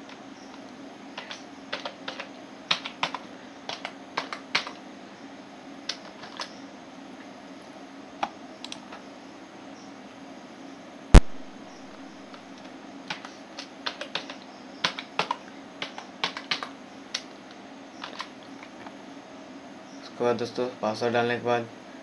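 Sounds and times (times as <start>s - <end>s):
keyboard key clicks: 12.3s - 17.3s.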